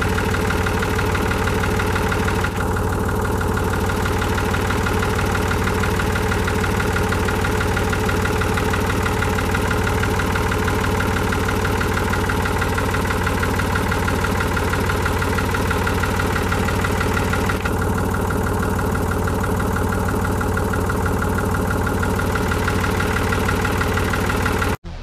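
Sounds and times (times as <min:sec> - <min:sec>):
tractor engine running: 0:00.0 - 0:25.0.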